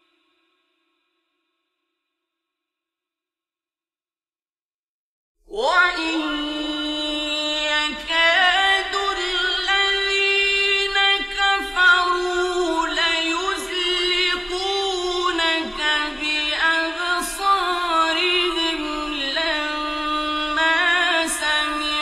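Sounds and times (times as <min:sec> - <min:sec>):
man reciting melodically: 0:05.6 - 0:22.0.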